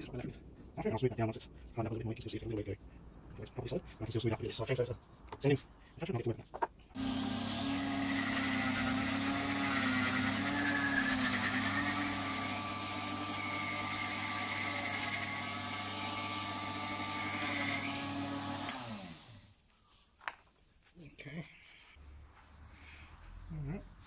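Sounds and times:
rotary tool sanding wood: 7.0 - 19.6.

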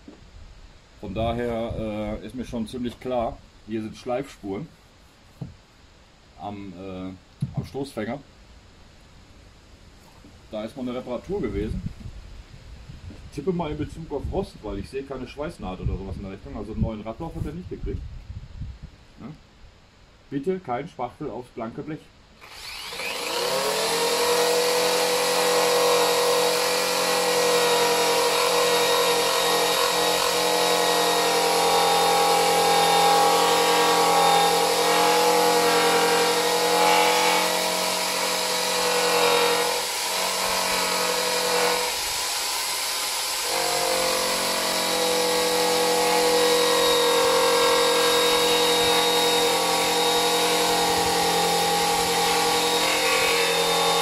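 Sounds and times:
rotary tool high whine: 22.4 - 54.0.

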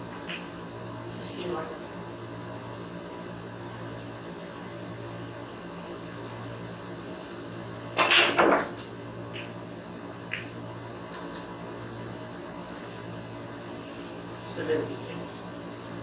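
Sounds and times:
steady low hum: 0.0 - 16.0
cue striking ball: 8.0 - 9.5
snooker balls clacking: 8.0 - 9.5.

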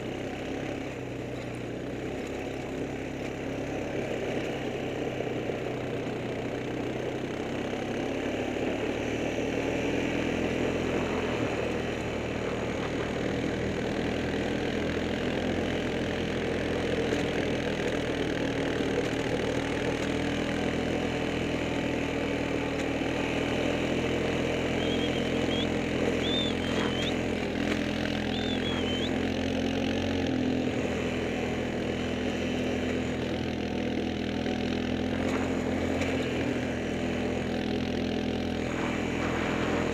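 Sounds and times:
small vehicle engine droning: 0.0 - 39.9
short high squeaks: 24.8 - 27.2.

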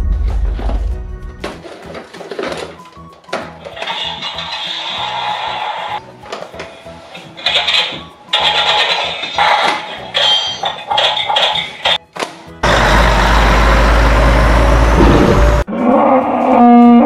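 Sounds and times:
light music: 0.0 - 12.6
truck engine: 10.0 - 15.7.

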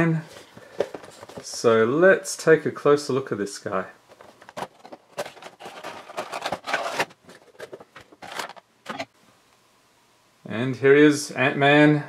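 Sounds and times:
packaging rustling: 0.3 - 1.6, 4.1 - 9.1.

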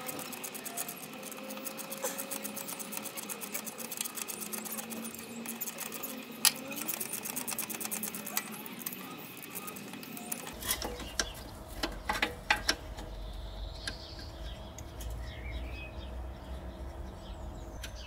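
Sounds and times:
metal and plastic clicks and knocks: 0.0 - 13.2.

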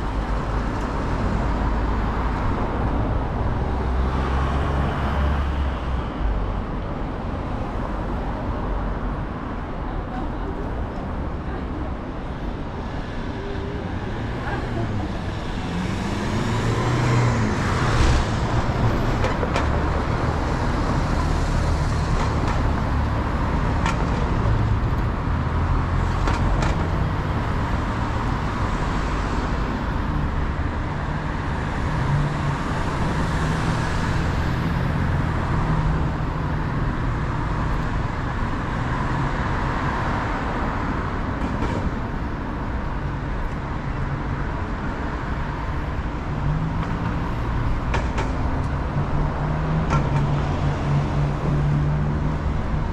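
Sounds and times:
cars passing: 0.0 - 52.9.

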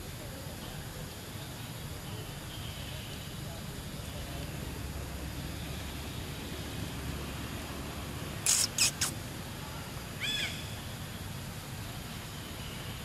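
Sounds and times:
high animal chirp: 8.4 - 9.2
harsh hissy animal calls: 8.4 - 9.4, 10.2 - 11.0.

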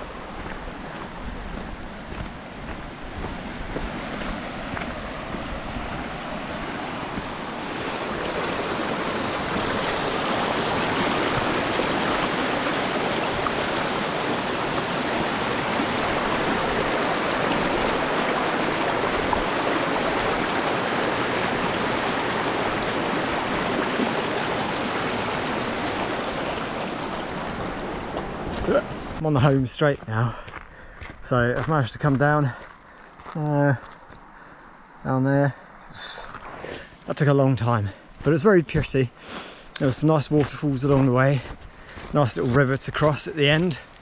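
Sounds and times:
river rushing over stones: 0.0 - 29.4.

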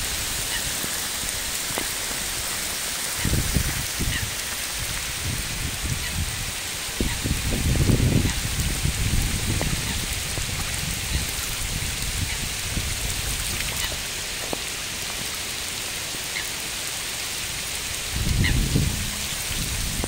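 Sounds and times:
heavy rain on water: 0.0 - 20.0
low rumble: 18.1 - 20.0.

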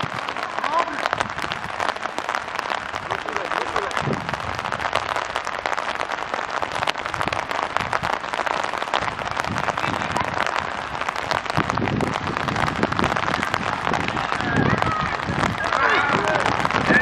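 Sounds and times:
rain pattering: 0.0 - 17.0.

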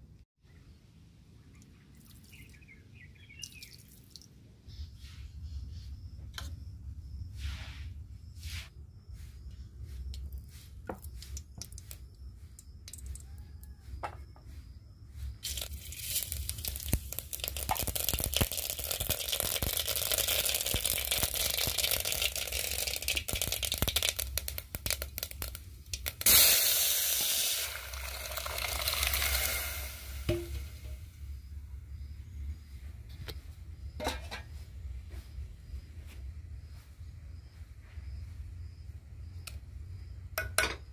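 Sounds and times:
liquid hissing in hot pot: 15.4 - 31.0
hot oil sizzling and crackling: 15.4 - 31.4.

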